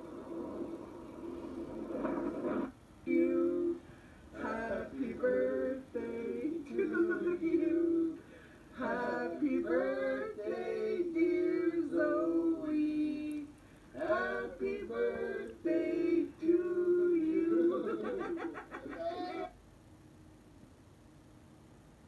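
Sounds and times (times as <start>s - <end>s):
people singing held notes: 3.0s - 18.2s.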